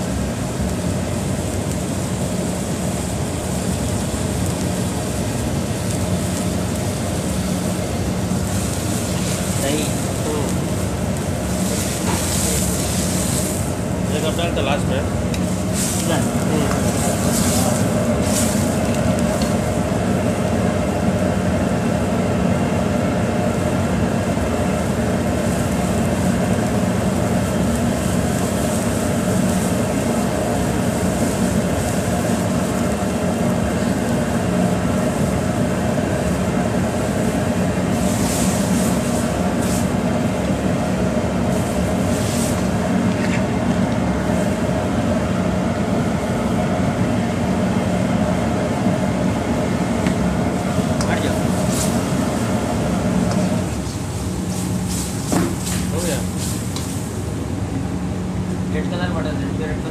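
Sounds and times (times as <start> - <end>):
commercial kitchen roar: 0.0 - 59.9
high scrapes or sizzles: 15.5 - 19.5.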